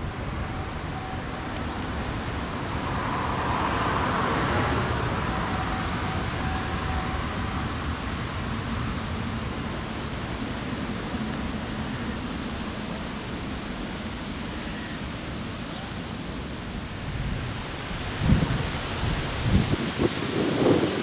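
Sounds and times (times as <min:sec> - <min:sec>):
wind buffeting microphone: 0:16.8 - 0:21.0.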